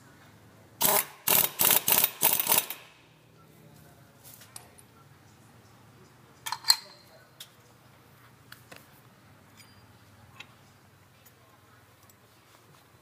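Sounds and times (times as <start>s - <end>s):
impact wrench hammering: 0.8s - 2.9s.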